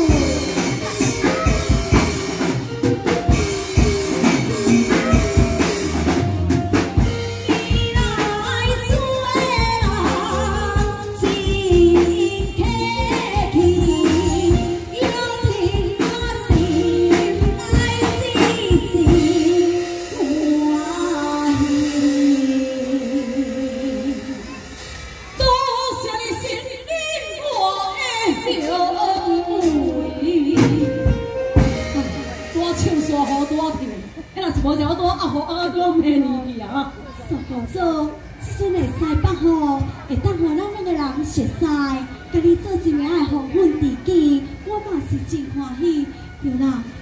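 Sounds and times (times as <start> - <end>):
steady drum beat: 0.0 - 25.9, 28.4 - 35.1
amplified band accompaniment: 0.0 - 47.0
opera singing into microphone: 7.5 - 24.5.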